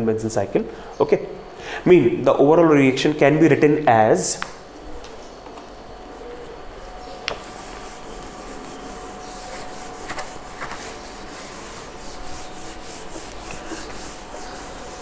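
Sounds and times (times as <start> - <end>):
cloth rubbing on whiteboard: 7.3 - 15.0.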